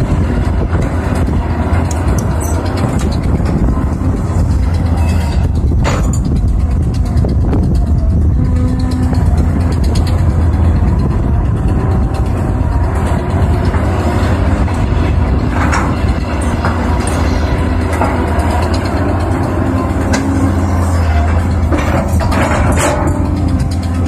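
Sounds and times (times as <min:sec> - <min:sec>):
excavator diesel engine running: 0:00.0 - 0:24.0
short metal clanks: 0:21.2 - 0:24.0.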